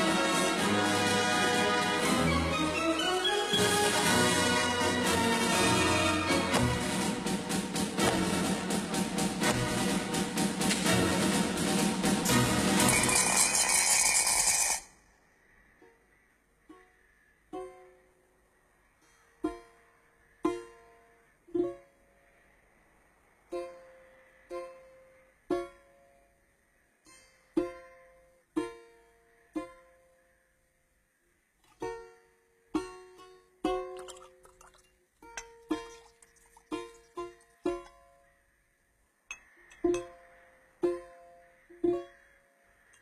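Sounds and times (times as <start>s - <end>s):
plucked string melody: 0.0s - 13.1s, 17.5s - 18.2s, 19.4s - 22.0s, 23.5s - 26.2s, 27.0s - 30.3s, 31.7s - 34.6s, 35.2s - 38.3s, 39.3s - 42.3s
loud orchestral music: 0.0s - 13.2s.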